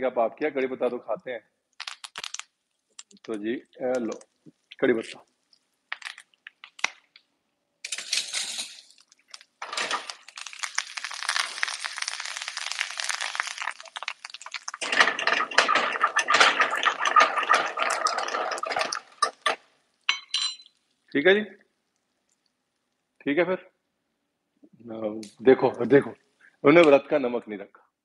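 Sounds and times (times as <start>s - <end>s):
spices sizzling in hot oil: 8.4s - 16.6s
pan being stirred: 12.7s - 19.6s.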